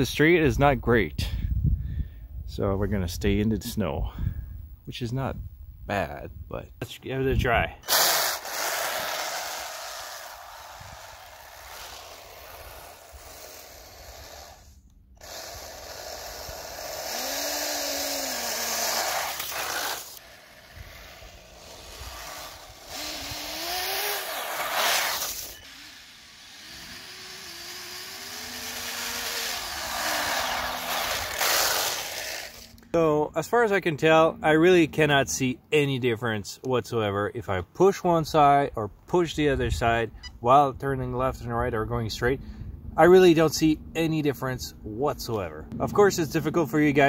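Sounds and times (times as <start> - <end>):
electric motor whining: 7.9 - 32.8
track churning snow: 7.9 - 32.8.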